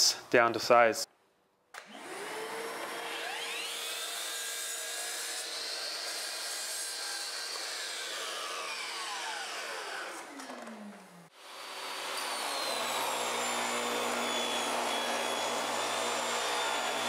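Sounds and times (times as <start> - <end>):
miter saw whine: 1.9 - 4.5, 7.6 - 17.0.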